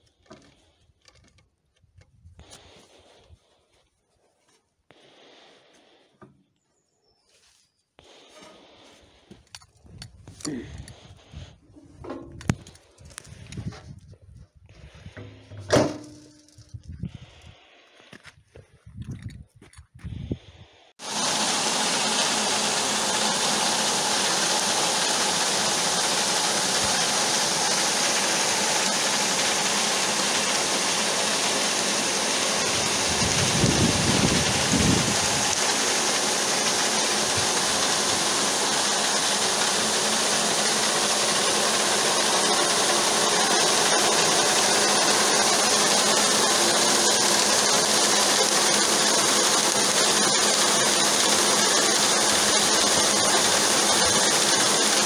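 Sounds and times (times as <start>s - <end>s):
grain pouring hiss: 4.9s - 6.1s, 21.0s - 55.0s
motor hum: 21.0s - 55.0s.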